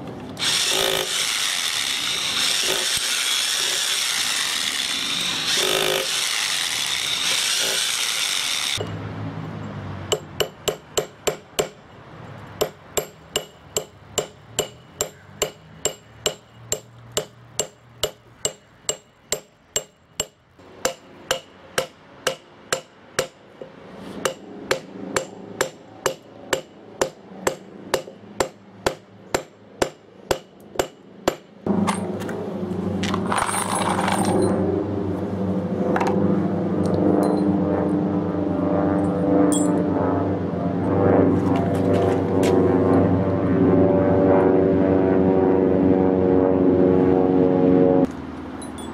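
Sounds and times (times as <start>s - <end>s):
hammer striking steel wedges: 10.1s - 11.8s, 12.6s - 32.1s.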